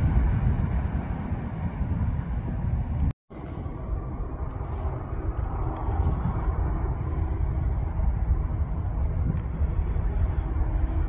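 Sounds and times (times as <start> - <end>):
diesel locomotive engine rumbling: 0.0 - 11.0.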